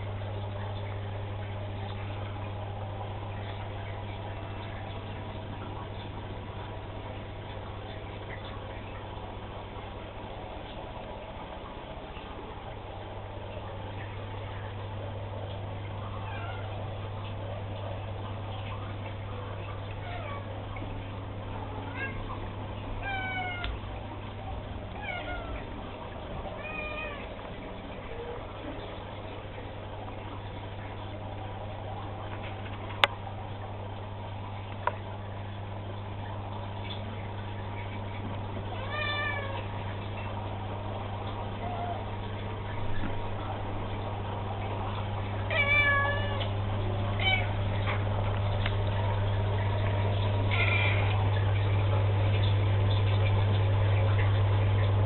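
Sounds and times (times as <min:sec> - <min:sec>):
steady low hum: 0:00.0 - 0:55.0
cat meowing: 0:23.0 - 0:23.7, 0:26.6 - 0:27.3, 0:45.5 - 0:46.5, 0:50.5 - 0:51.1.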